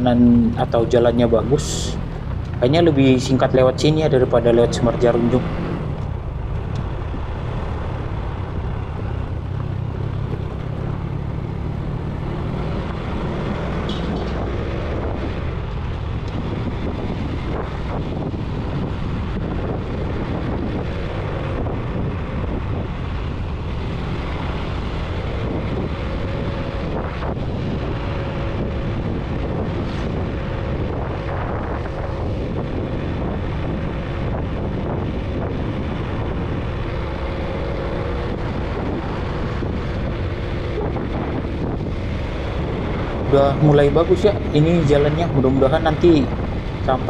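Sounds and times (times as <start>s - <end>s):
vehicle engine and road noise: 0.0s - 47.0s
wind on microphone: 0.0s - 47.0s.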